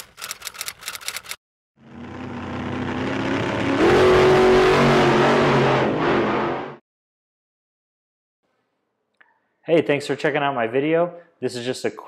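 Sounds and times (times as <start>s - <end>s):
rapid clicks: 0.0s - 1.4s
car engine revving: 1.8s - 6.8s.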